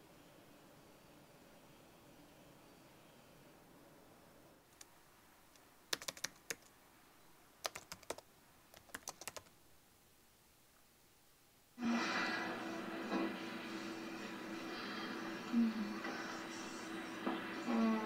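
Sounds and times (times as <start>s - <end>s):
television sound: 0.0s - 18.0s
typing on a keyboard: 5.9s - 6.7s, 7.6s - 9.5s.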